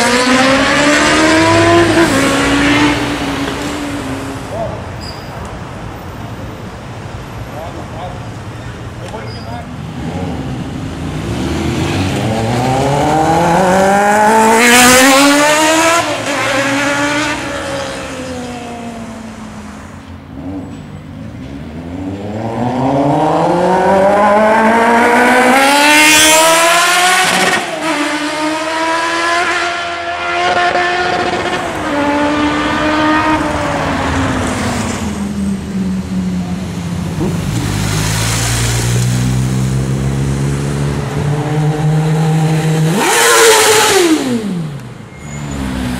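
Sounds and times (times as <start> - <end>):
motorcycle engine revving hard: 0.0 - 3.4, 9.8 - 19.1, 22.0 - 34.0, 38.6 - 44.8.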